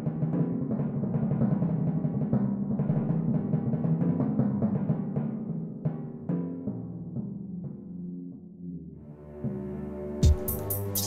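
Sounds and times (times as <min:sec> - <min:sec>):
fast low drumming: 0:10.2 - 0:11.0.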